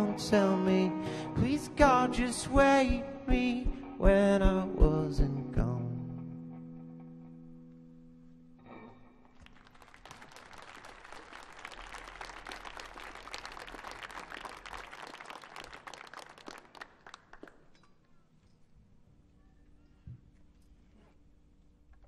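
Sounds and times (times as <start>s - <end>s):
audience applauding: 9.4s - 17.8s.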